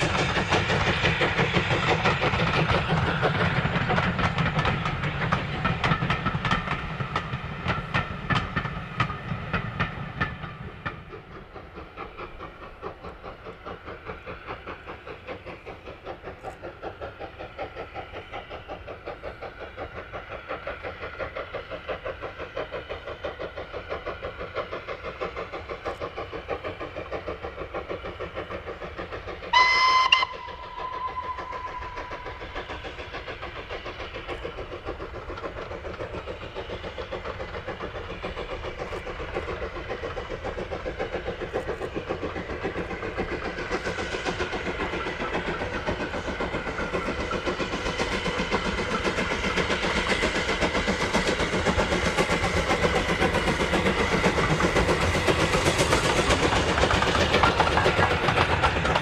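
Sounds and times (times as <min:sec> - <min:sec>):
passing train clatter: 0:00.0 - 0:59.0
steam locomotive exhaust beat: 0:00.0 - 0:59.0
steam whistle blast: 0:29.5 - 0:32.1.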